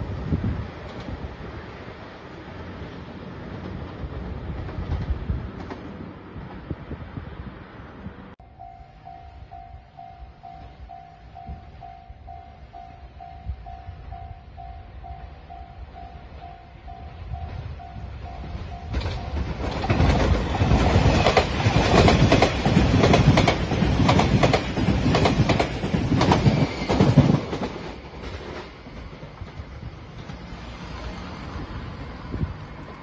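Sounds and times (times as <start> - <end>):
train passing: 0.0 - 33.0
wheels clicking over rail joints: 18.3 - 30.6.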